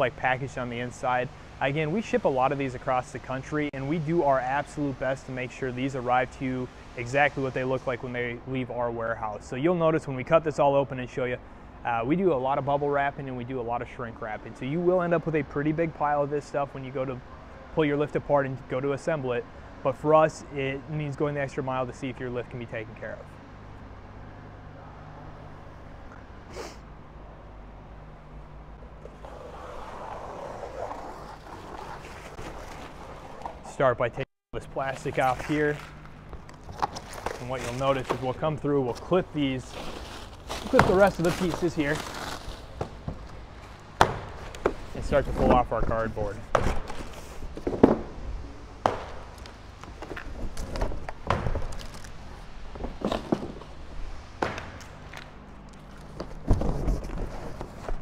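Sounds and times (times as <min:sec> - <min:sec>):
low warehouse hum: 0:00.0 - 0:58.0
person sniffing: 0:26.5 - 0:26.8
rustling and scuffing of handling: 0:30.7 - 0:33.9, 0:34.8 - 0:48.1, 0:49.1 - 0:58.0.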